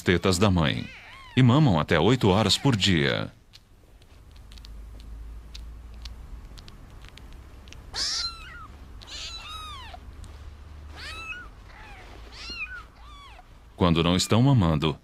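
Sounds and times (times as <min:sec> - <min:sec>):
newborn kittens mewing: 0:00.6 - 0:03.7, 0:06.6 - 0:10.1, 0:10.9 - 0:13.7.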